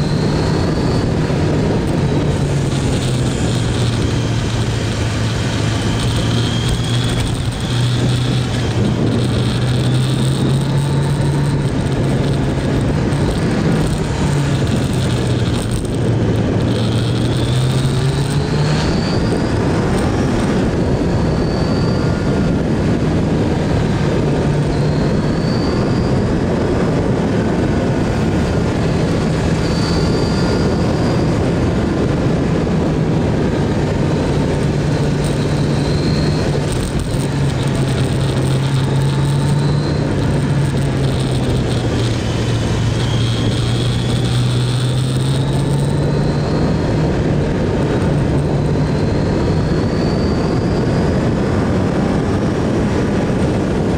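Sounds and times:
motorcycle engine running: 0.0s - 53.9s
wind rush: 0.0s - 53.9s.

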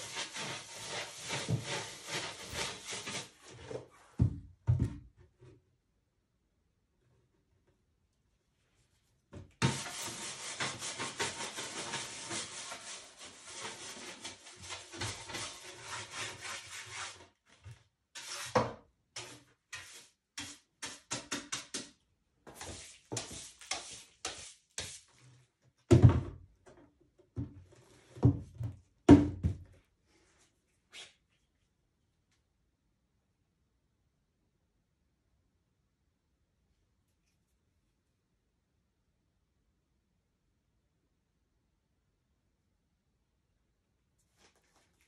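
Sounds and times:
tool scraping painted canvas: 0.0s - 4.2s, 9.6s - 21.9s, 22.5s - 25.2s.

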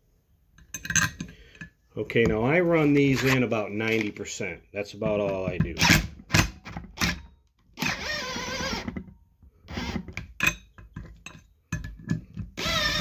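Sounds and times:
cordless driver whirring: 7.8s - 9.0s, 9.7s - 10.1s, 12.6s - 13.0s.

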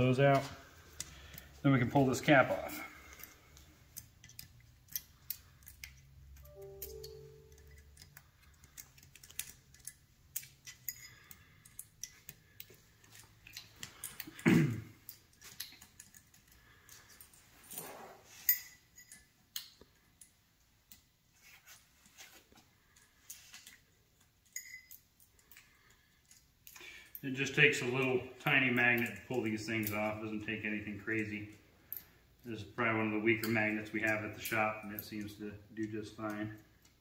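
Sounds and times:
small metal shims clinking: 2.6s - 21.2s, 22.8s - 27.7s, 31.1s - 32.5s.

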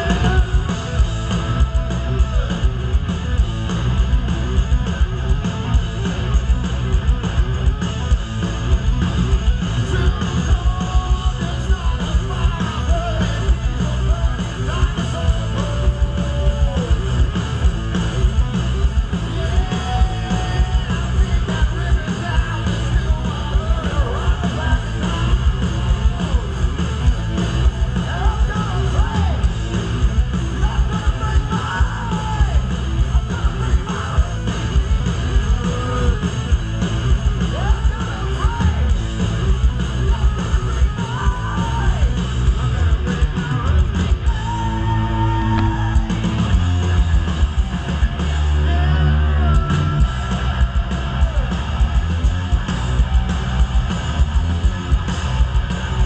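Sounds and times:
electric guitars: 0.0s - 56.0s
pounding drums: 0.0s - 56.0s
yelled vocals: 0.0s - 56.0s.

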